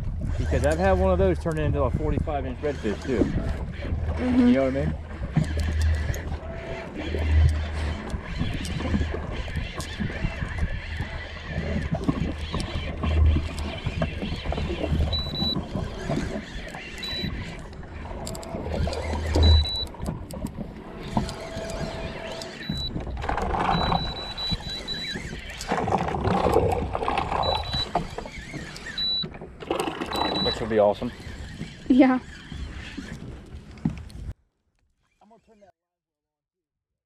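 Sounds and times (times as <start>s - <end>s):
wind buffeting microphone: 0.0s - 28.6s
short high-pitched beeps: 15.1s - 15.6s, 17.0s - 17.4s, 19.2s - 19.9s, 21.5s - 23.0s, 23.7s - 25.2s, 27.4s - 28.0s, 29.0s - 29.3s, 30.1s - 30.7s.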